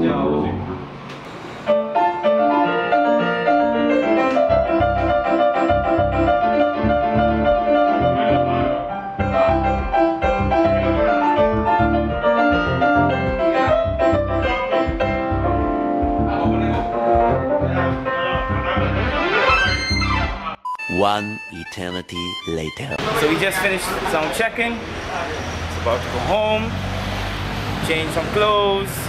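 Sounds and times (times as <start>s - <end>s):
keyboard playing piano chords: 0.0s - 24.9s
pulsing bass line: 5.8s - 23.1s.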